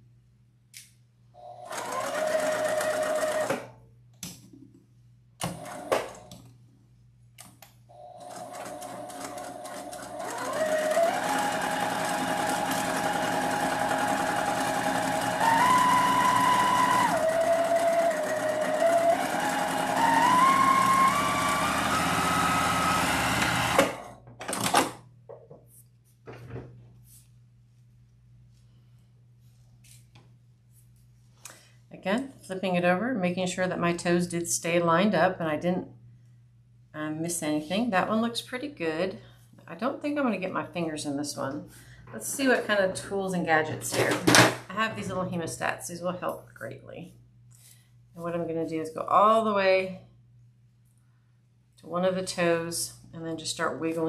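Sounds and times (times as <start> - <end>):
sewing machine motor whine: 1.6 - 3.6, 8.2 - 24.1.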